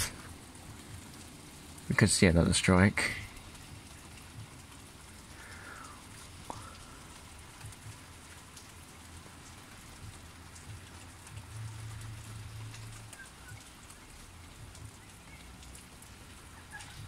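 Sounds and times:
steady rain falling: 0.0s - 17.0s.

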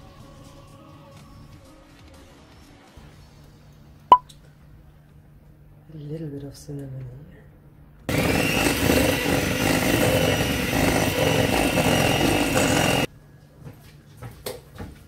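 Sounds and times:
electric hand mixer whining: 8.1s - 13.1s.

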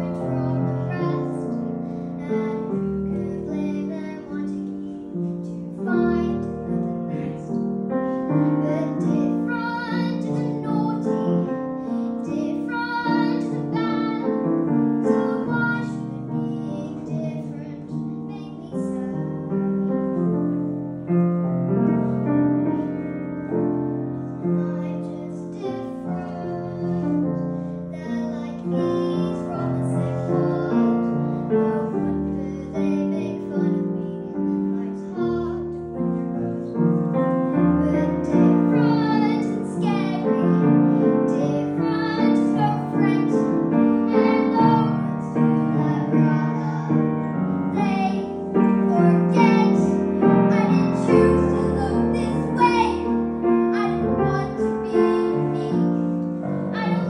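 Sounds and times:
girl singing with vibrato: 0.0s - 7.6s, 8.2s - 20.0s, 24.2s - 36.1s, 37.5s - 57.0s
grand piano: 0.0s - 57.0s.

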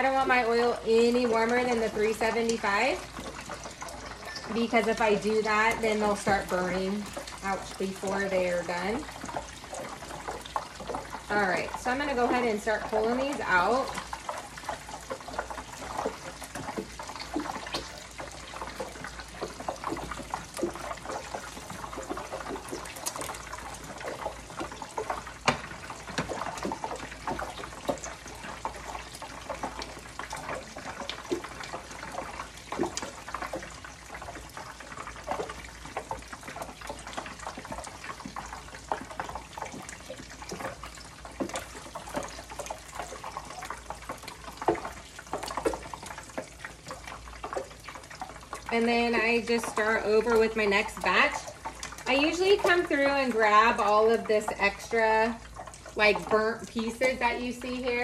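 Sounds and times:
food deep-frying in hot oil: 0.0s - 58.0s.

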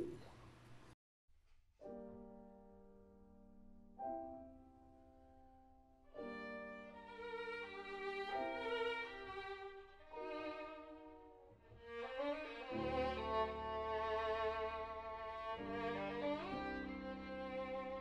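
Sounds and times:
bowed violin music: 6.2s - 18.0s.

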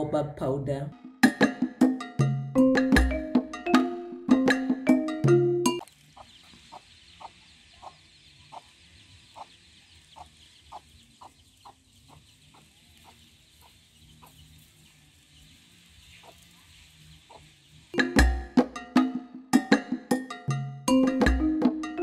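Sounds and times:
hen clucking: 5.8s - 18.3s.

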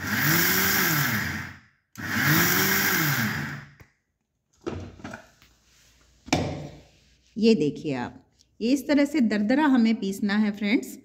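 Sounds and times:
electric mixer grinder motor: 0.0s - 3.8s.

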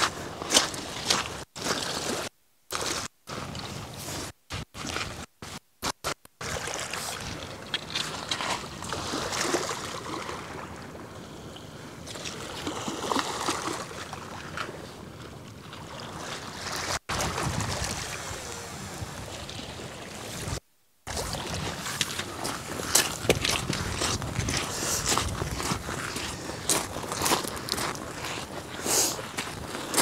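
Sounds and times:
wind on microphone: 17.1s - 30.0s.

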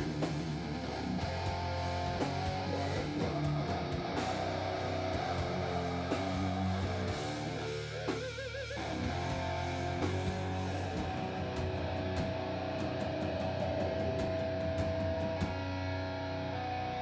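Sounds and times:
live metal band playing: 0.0s - 17.0s.

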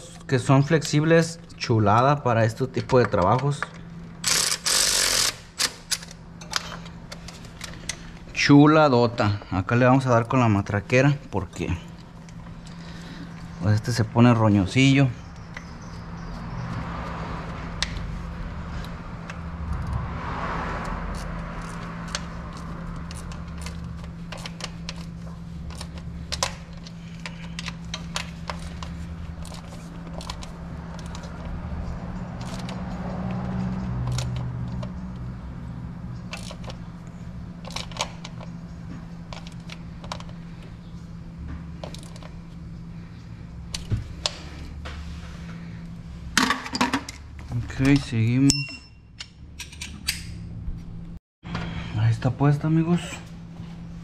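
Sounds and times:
steady low hum: 0.0s - 54.0s
ratchet and sockets clicking: 3.0s - 8.0s, 20.8s - 35.3s, 36.1s - 36.8s.

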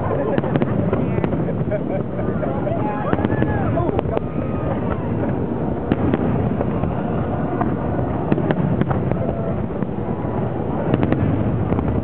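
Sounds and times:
rumble of firework bursts: 0.0s - 12.0s
sharp firework cracks: 3.0s - 12.0s.

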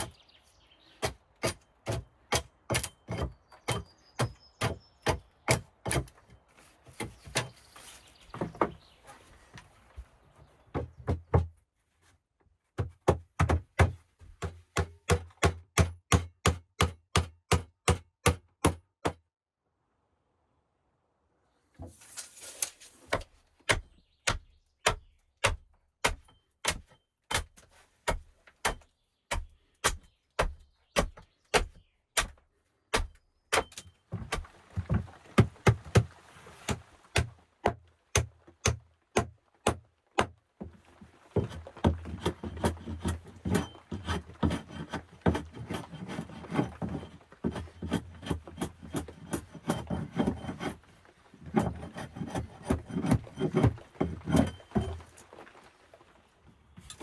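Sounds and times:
hand rubbing rough wooden planks: 40.6s - 57.0s
hatchet blade scraping boards: 41.4s - 55.1s.

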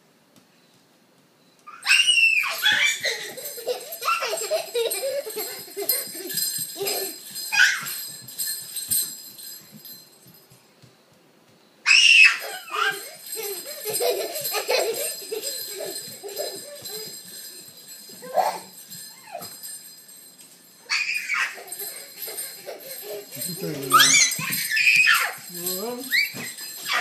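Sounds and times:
toddler squealing: 1.7s - 8.0s, 11.9s - 17.2s, 20.9s - 27.0s.

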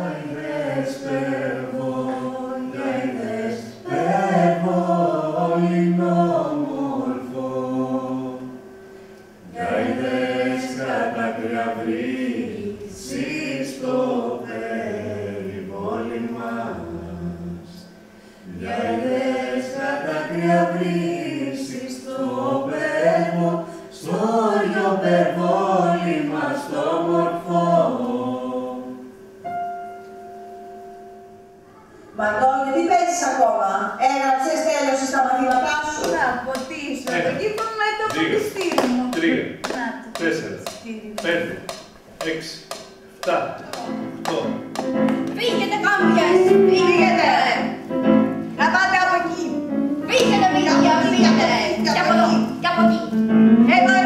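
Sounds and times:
group singing: 0.0s - 8.7s, 9.4s - 29.2s, 35.0s - 42.6s, 43.2s - 47.8s
piano accompaniment: 0.0s - 32.1s, 35.0s - 54.0s.

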